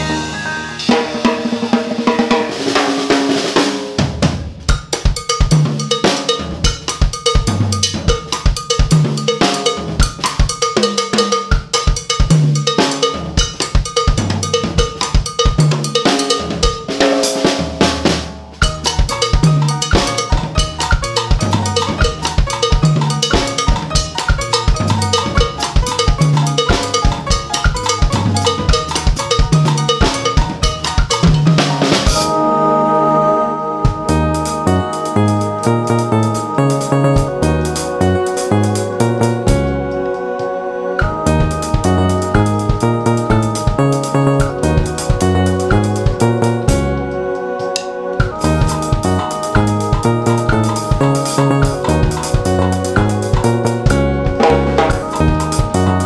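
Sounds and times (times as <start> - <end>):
low bass notes: 0.0 - 2.8, 17.4 - 56.0
drum kit groove: 0.0 - 32.5, 33.8 - 56.0
cowbell pattern: 4.7 - 32.4, 34.0 - 40.0, 41.0 - 47.3, 48.2 - 56.0.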